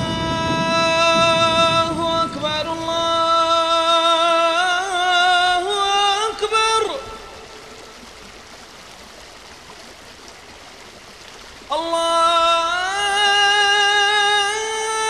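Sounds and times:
quiet steady rushing: 0:00.0 - 0:11.6.

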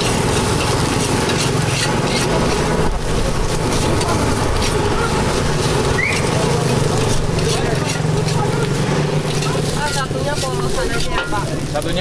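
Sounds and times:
metal spatula clanking on wok: 0:06.5 - 0:11.8.

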